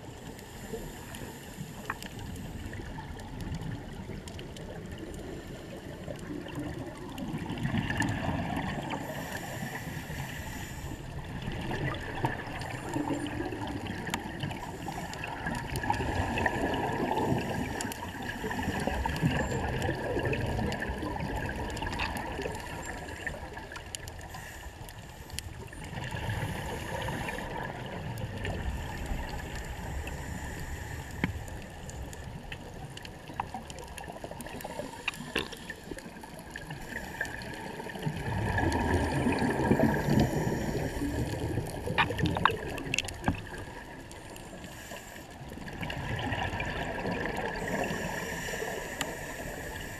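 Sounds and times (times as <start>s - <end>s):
exhaled air bubbling: 0.0s - 49.9s
regulator inhale hiss: 0.2s - 3.0s, 8.9s - 11.2s, 14.5s - 15.5s, 16.1s - 19.2s, 24.2s - 27.7s, 28.5s - 32.0s, 34.6s - 38.0s, 39.6s - 41.6s, 44.4s - 45.7s, 47.5s - 49.9s.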